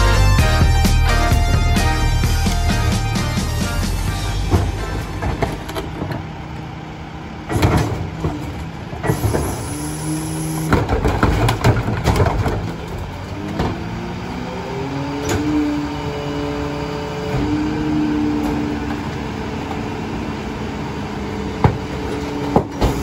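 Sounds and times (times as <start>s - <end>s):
garbage truck engine and hydraulics: 0.0s - 23.0s
metal clanks and bangs: 1.4s - 6.6s, 7.4s - 9.7s, 10.6s - 14.0s.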